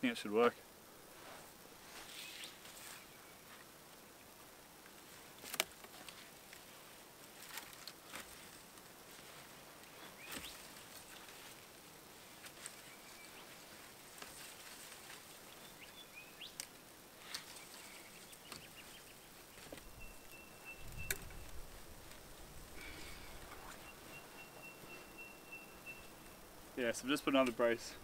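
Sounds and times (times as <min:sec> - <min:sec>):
bird whistling: 0:19.8 - 0:21.5, 0:22.9 - 0:26.4.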